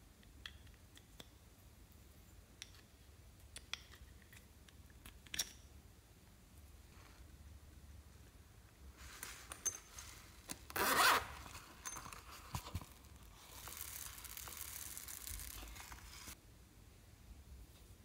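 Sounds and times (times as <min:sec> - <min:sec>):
zipper pulled open: 0:10.7 - 0:16.4
foam beads pouring out: 0:13.3 - 0:16.4.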